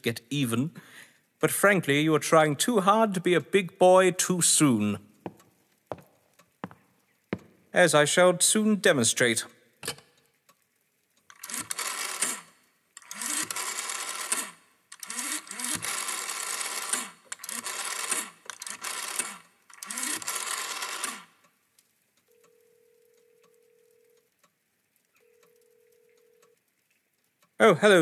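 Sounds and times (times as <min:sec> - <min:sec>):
rotary telephone dial whirring: 0:11.3 - 0:21.4, 0:25.3 - 0:26.5
faint telephone ringing tone: 0:22.2 - 0:24.3, 0:25.2 - 0:26.7.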